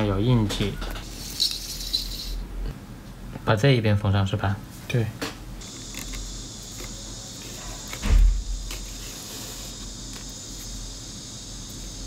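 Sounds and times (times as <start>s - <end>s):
steady high-pitched hiss: 0.0s - 2.7s, 3.5s - 12.0s
dull thump: 8.0s - 8.7s.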